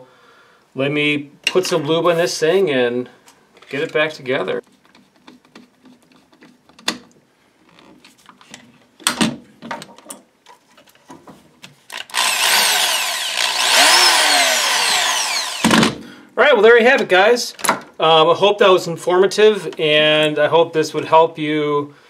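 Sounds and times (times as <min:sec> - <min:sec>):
power drill whirring: 0:11.9 - 0:16.0.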